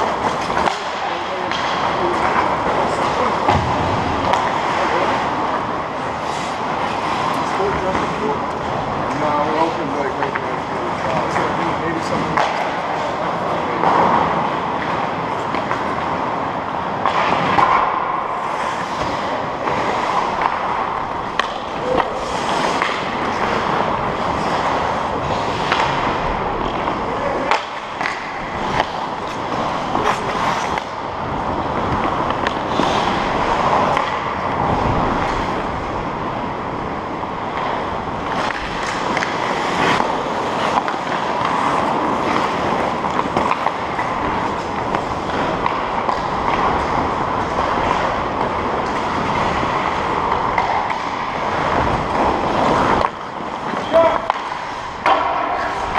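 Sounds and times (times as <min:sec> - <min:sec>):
stick clacking on puck: 0:00.1 - 0:02.5, 0:12.2 - 0:13.0, 0:17.0 - 0:30.9, 0:31.8 - 0:34.3, 0:37.5 - 0:55.9
ice skate blades scraping ice: 0:06.0 - 0:08.2, 0:17.0 - 0:35.7, 0:37.5 - 0:55.9.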